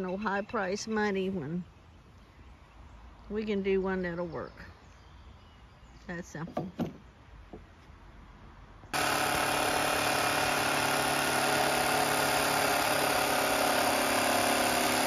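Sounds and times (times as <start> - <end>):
power tool whine: 8.9 - 15.0.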